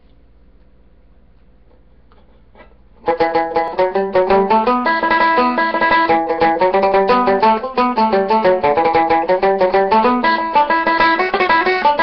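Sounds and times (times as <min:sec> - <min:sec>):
banjo picking a fast reel: 0:03.0 - 0:12.0.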